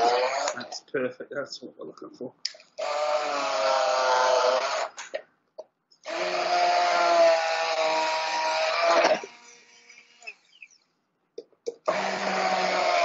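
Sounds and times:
hand blender motor whine: 0.0s - 0.7s, 2.8s - 5.0s, 6.0s - 10.8s, 11.8s - 13.0s.

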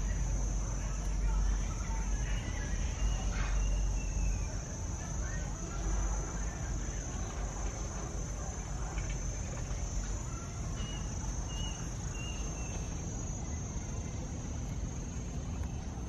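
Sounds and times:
high insect drone: 0.0s - 16.0s
bird chirps: 2.3s - 4.6s, 10.8s - 13.6s.

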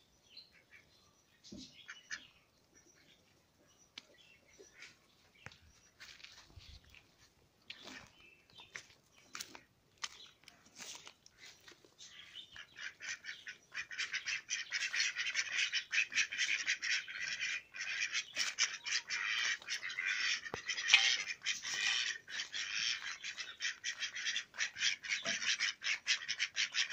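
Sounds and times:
ducks quacking: 12.0s - 26.9s.

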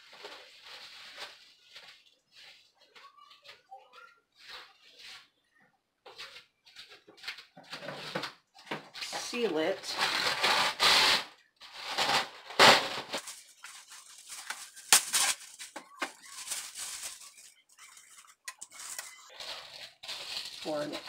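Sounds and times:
plastic wrap crinkling: 0.0s - 5.3s, 6.6s - 21.0s
cling wrap tearing off roll: 9.9s - 21.0s.

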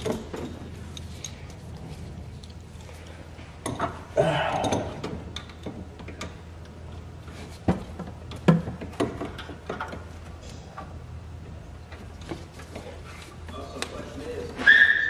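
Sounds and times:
tools clicking and knocking: 0.0s - 7.0s, 7.6s - 10.2s
steady low hum: 0.0s - 14.6s.

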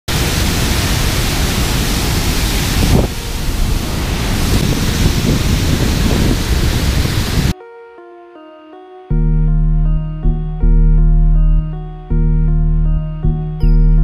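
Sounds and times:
water pouring over dam spillway: 0.1s - 7.6s.

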